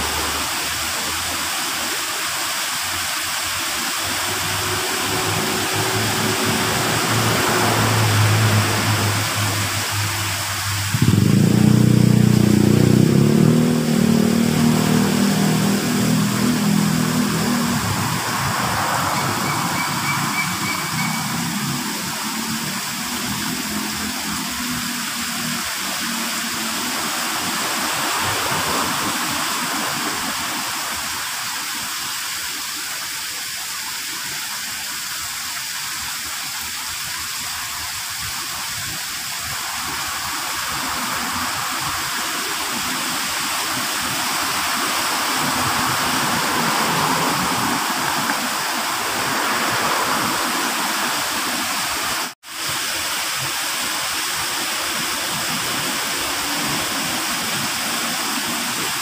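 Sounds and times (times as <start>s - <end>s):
waterfall pouring into pond: 0.0s - 59.0s.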